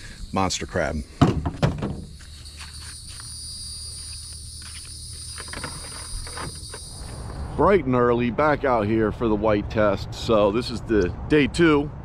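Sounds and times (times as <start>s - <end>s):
insects buzzing: 0.0s - 7.6s
low rumble: 7.2s - 11.3s.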